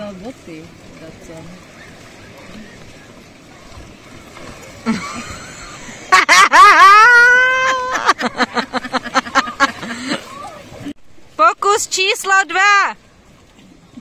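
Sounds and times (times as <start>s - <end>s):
person laughing: 4.9s - 10.4s
person shrieking: 6.8s - 8.1s.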